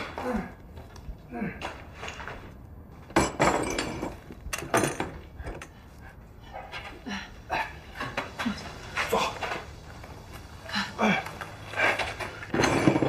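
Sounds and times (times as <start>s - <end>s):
debris and pottery clattering: 1.8s - 5.2s, 11.8s - 13.0s.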